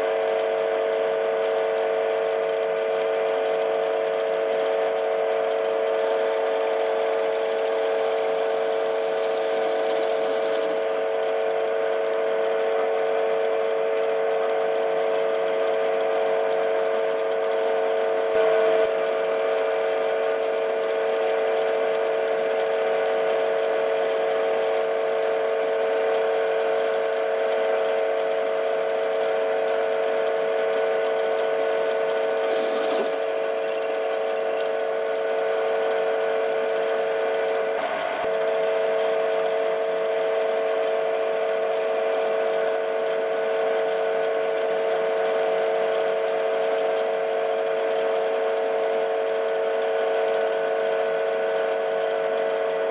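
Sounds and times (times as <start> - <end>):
lathe whining: 0.0 - 52.9
boring bar cutting metal: 15.9 - 52.9.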